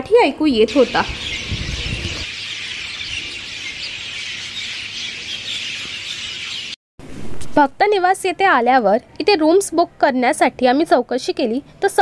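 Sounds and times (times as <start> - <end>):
birds chirping: 0.4 - 6.8.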